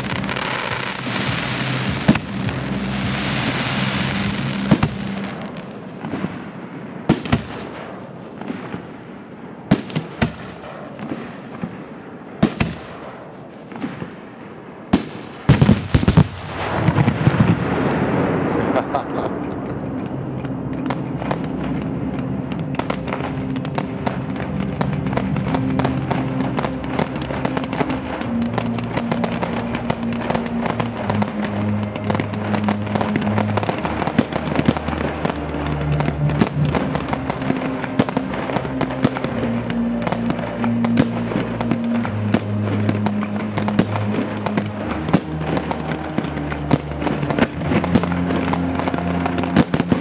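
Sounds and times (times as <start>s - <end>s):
music with low bass: 0.0s - 5.4s, 18.9s - 50.0s
fireworks crackling: 0.0s - 50.0s.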